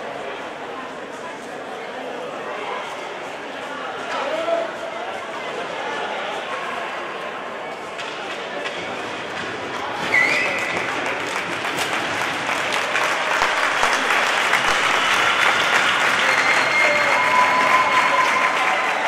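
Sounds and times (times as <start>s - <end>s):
crowd applauding: 10.1s - 19.0s.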